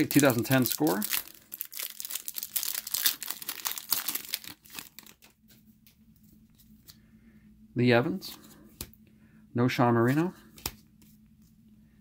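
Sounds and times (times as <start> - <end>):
plastic wrapper crinkling: 0.0 - 5.4.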